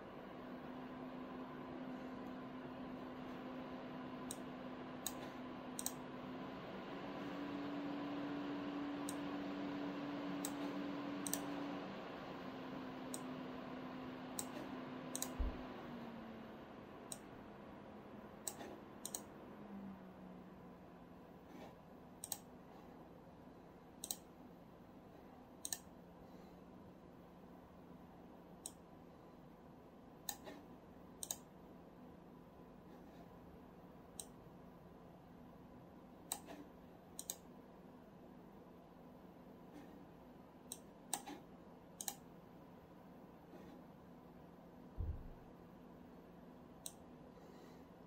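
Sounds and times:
cooler fans and pump humming: 0.0s - 48.0s
sharp clicks: 5.8s - 6.0s, 11.2s - 11.5s, 14.4s - 15.5s, 18.4s - 19.3s, 22.2s - 22.5s, 24.0s - 24.3s, 25.6s - 25.9s, 31.2s - 31.5s, 37.2s - 37.5s, 42.0s - 42.3s.

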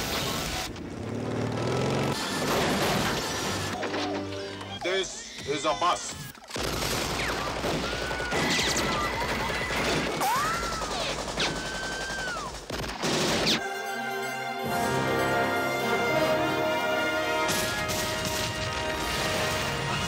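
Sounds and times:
rapid gunfire: 1.6s - 3.7s, 6.5s - 13.6s
film music: 3.0s - 5.2s, 13.4s - 20.0s.

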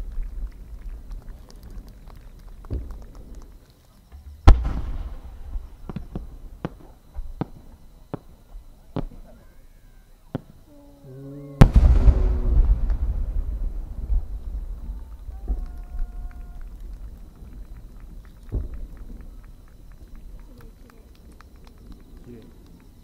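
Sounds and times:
small pops and crackles: 0.0s - 8.3s, 14.1s - 23.0s
firework launch boom: 4.2s - 9.3s, 11.6s - 19.8s
firework burst boom with rumble: 4.2s - 9.4s, 11.5s - 23.0s.

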